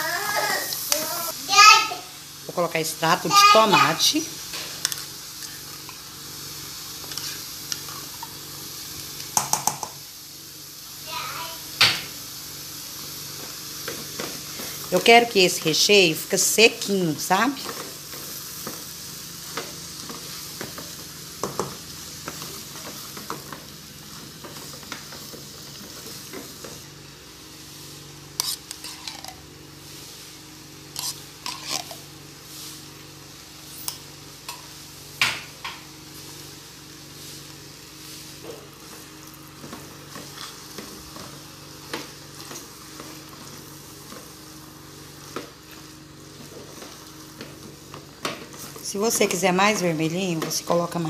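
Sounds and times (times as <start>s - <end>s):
chicken filling sizzling in a pot: 0.0s - 51.0s
wooden spoon scraping a pot: 28.4s - 29.4s.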